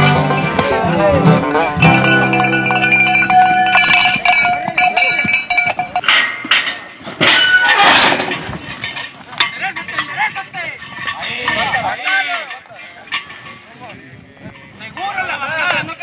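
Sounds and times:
country music with plucked strings: 0.0 - 4.8.

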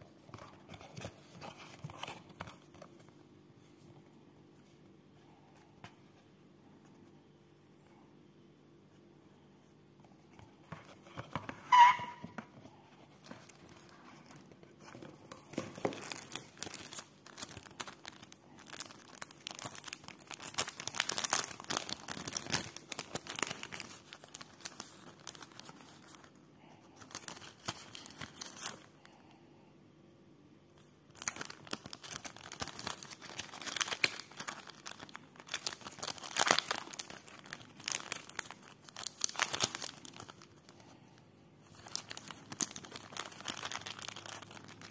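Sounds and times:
plastic and paper crinkling: 0.0 - 3.9, 10.3 - 28.9, 30.8 - 44.9
short sharp squeak: 11.6 - 12.4.

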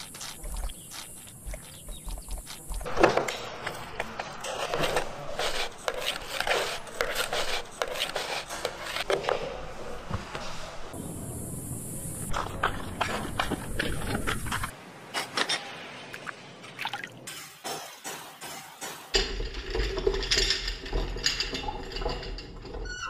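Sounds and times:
tool scraping on clay: 0.0 - 10.9.

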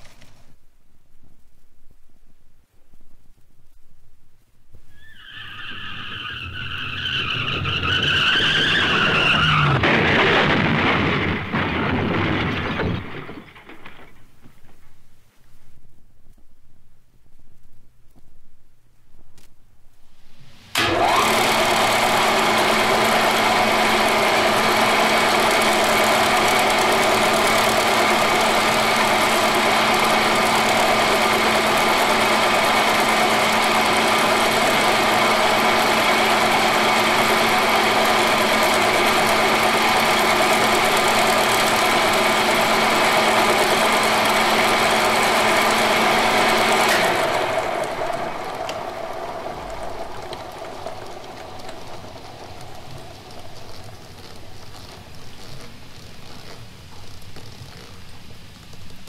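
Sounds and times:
faint noise: 0.0 - 6.4, 9.9 - 20.8
machine humming and rattling: 6.5 - 15.3, 20.2 - 59.0.

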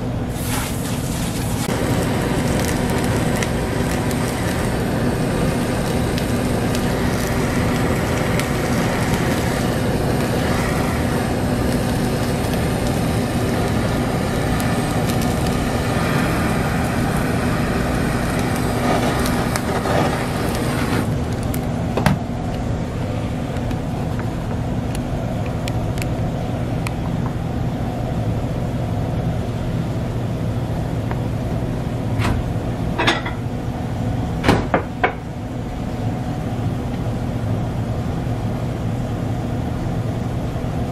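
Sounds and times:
low steady hum: 0.0 - 40.9
blowtorch hissing: 0.2 - 26.7.

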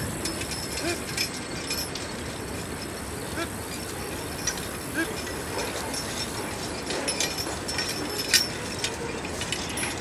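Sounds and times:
metallic harness clinking: 0.0 - 10.0
steady outdoor hiss: 0.0 - 10.0.

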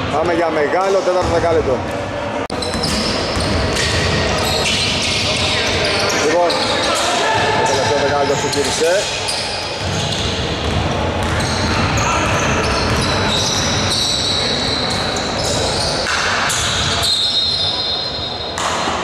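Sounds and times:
sneakers squeaking: 1.2 - 19.0
basketball bouncing on wooden court: 9.8 - 14.0.

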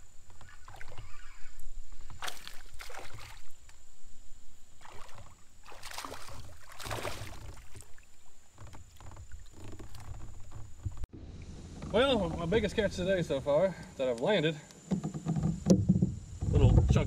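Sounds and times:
fish splashing at the surface: 4.8 - 8.1.

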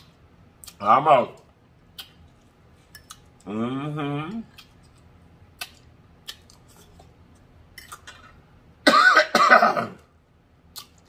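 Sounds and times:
man coughing: 8.9 - 10.1.

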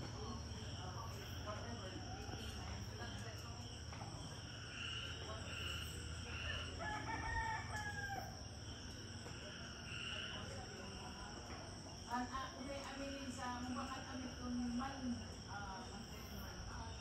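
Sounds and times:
insects chirping: 0.0 - 17.0
rooster crowing: 6.4 - 8.4.

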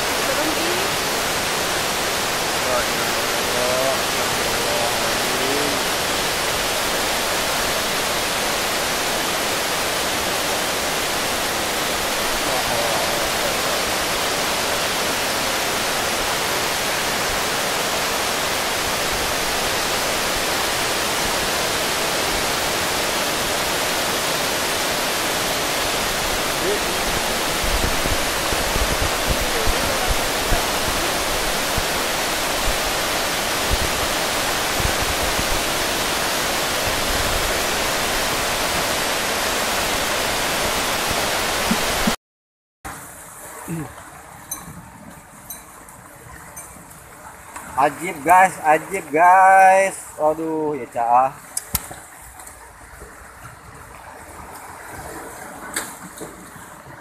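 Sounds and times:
flood water rushing: 0.0 - 42.2, 42.9 - 57.0
wind buffeting microphone: 25.4 - 42.2.

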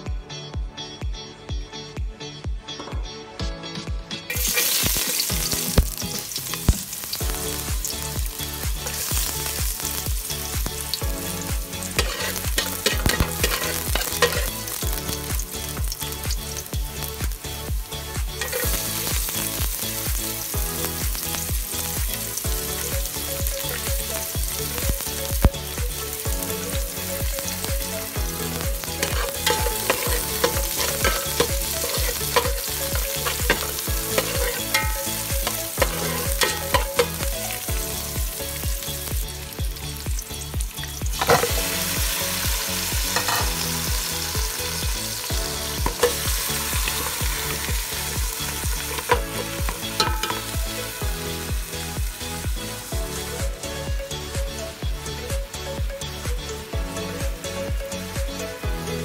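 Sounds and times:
garlic and onions sizzling in oil: 4.3 - 59.0
spatula stirring in a pan: 12.0 - 14.8, 28.7 - 37.6.

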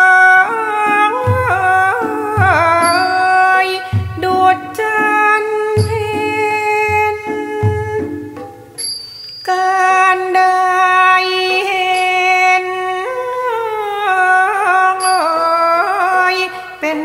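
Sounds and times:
person singing long ornamented notes: 0.0 - 17.0
high ringing stroke: 2.7 - 4.3, 8.4 - 9.7, 15.0 - 16.5.

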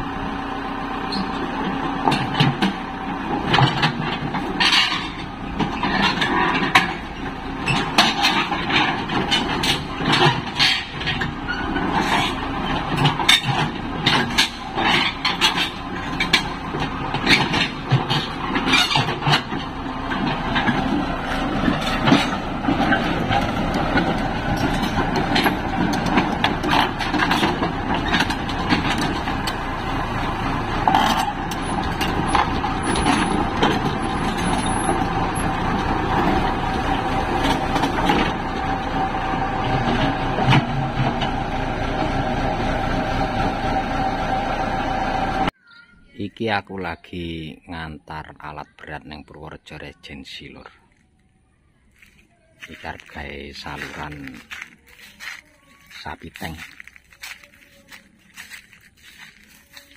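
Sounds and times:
excavator diesel engine running: 0.0 - 45.6, 52.0 - 59.9
metallic clanks from steel tracks: 1.1 - 45.5.

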